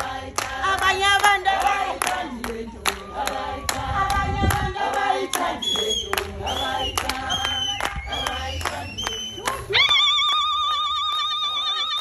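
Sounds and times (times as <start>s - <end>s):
hand-clapping: 0.0s - 12.0s
women singing together: 0.0s - 12.0s.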